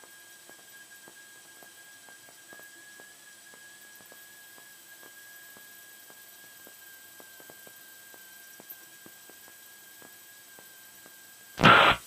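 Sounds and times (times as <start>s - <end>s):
faint hiss: 11.6s - 12.0s
high-pitched whine: 11.6s - 12.0s
radio static burst: 11.6s - 12.0s.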